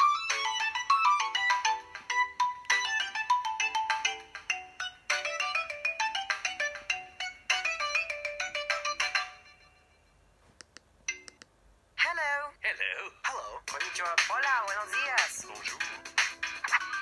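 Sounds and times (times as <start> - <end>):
phone ringtone melody: 0.0 - 10.2.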